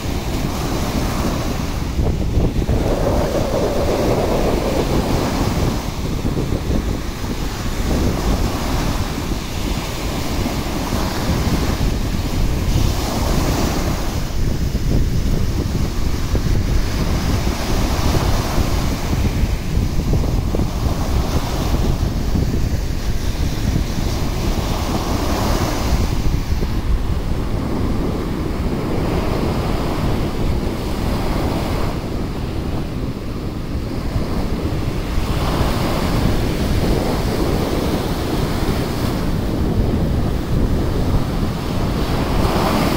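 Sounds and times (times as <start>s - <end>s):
surf breaking on sand: 0.0s - 42.9s
wind rumble on microphone: 0.0s - 42.9s.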